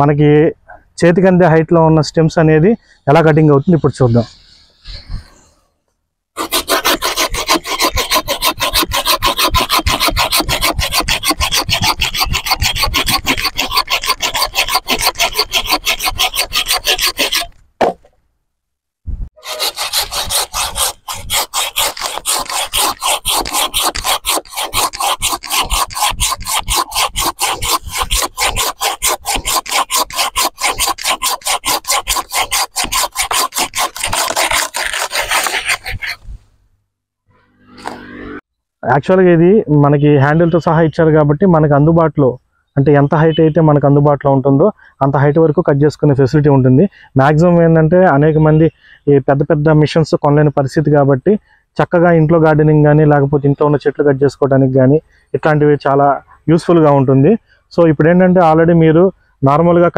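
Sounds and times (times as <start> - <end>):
hand saw cutting through wood: 6.4 - 17.6, 19.4 - 36.3.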